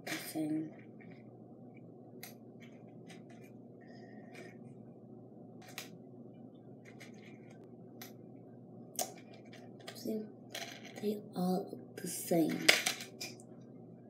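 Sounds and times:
earrings clicking and scratching: 0.0s - 1.3s, 2.2s - 4.8s, 5.5s - 6.0s, 6.7s - 8.2s, 9.0s - 11.1s
low background noise: 0.0s - 14.0s.

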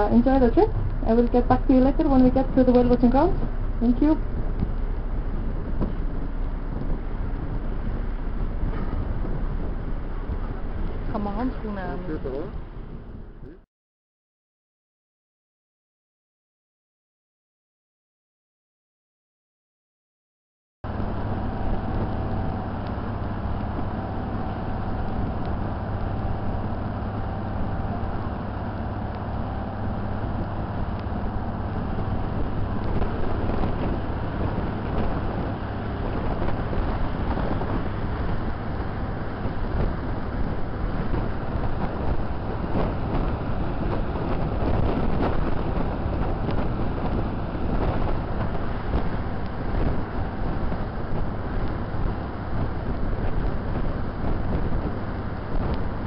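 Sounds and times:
boat engine drone: 0.0s - 13.6s, 20.9s - 56.0s
wind buffeting microphone: 0.0s - 13.6s, 20.9s - 56.0s
rushing wake water: 20.9s - 56.0s.

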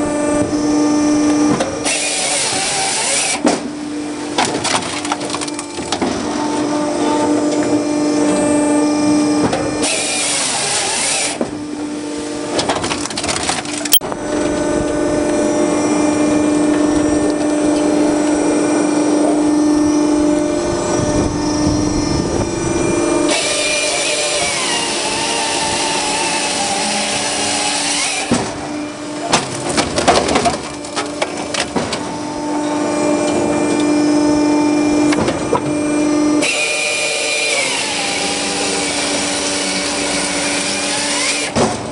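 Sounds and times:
firewood processor humming: 0.0s - 41.9s
chainsaw cutting log: 1.5s - 6.6s, 9.5s - 15.4s, 23.2s - 32.1s, 36.4s - 41.8s
wood cracking and knocking: 29.3s - 32.0s.

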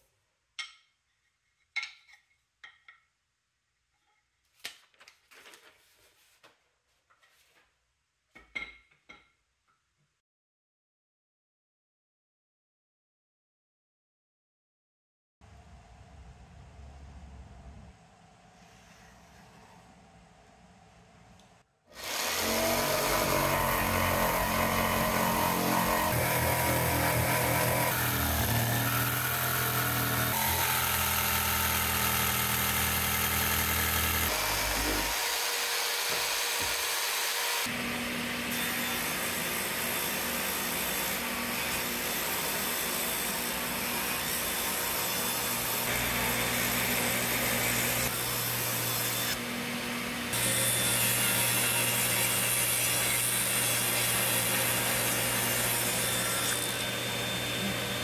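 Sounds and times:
power tool working wood: 22.0s - 58.0s.

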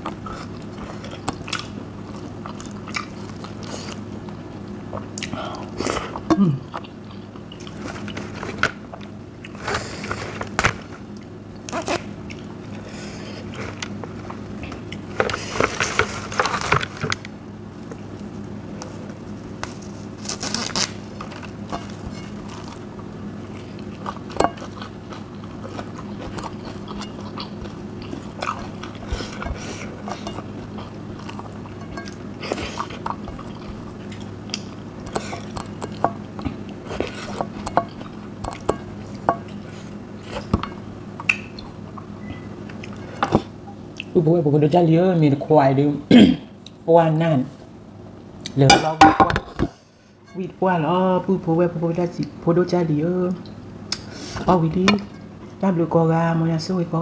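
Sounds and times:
soft chewing: 0.0s - 44.2s
steady low hum: 0.0s - 57.0s.

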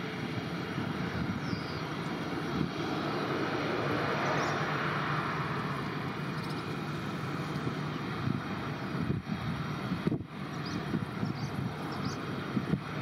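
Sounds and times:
jet engines running: 0.0s - 13.0s.

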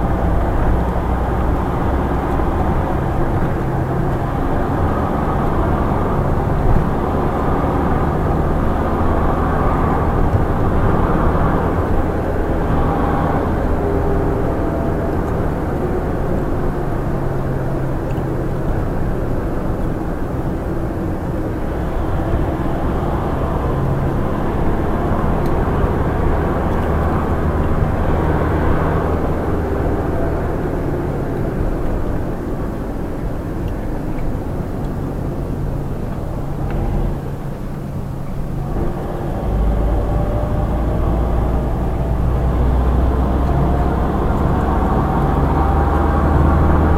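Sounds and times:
vehicle engine and road noise: 0.0s - 46.9s.

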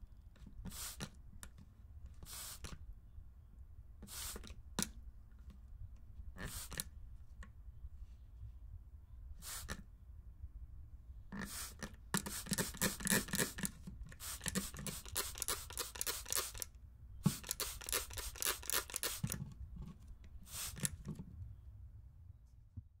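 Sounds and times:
spray bottle squirting: 0.7s - 1.1s, 2.2s - 2.7s, 4.1s - 4.5s, 6.4s - 6.9s, 11.4s - 19.4s, 20.5s - 21.1s.

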